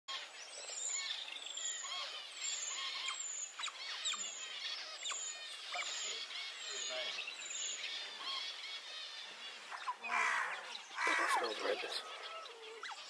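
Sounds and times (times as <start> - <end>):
otters chirping and squeaking: 2.7 - 7.2, 11.0 - 13.0.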